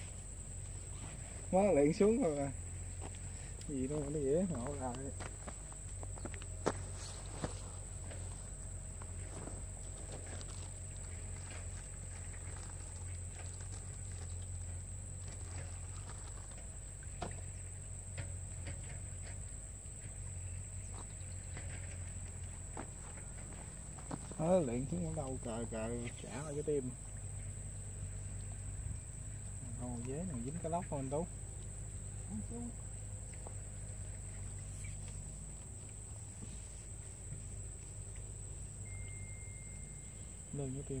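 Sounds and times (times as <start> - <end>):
insects trilling: 0.0 - 41.0
low steady hum: 0.0 - 41.0
high-pitched insect drone: 38.8 - 41.0.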